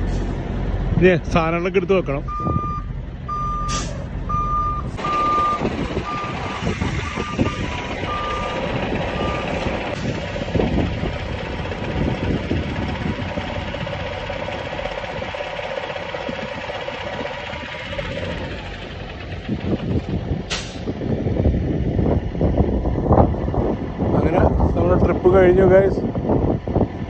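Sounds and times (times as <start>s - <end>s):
truck engines idling: 0.0s - 27.0s
truck reversing alarm beeping: 2.2s - 10.6s.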